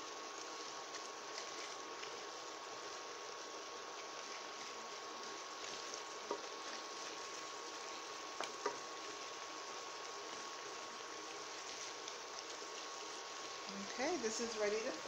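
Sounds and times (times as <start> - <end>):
vegetables sizzling in a frying pan: 0.0 - 15.0
wooden spoon knocking on pan: 6.2 - 6.5, 8.4 - 8.8.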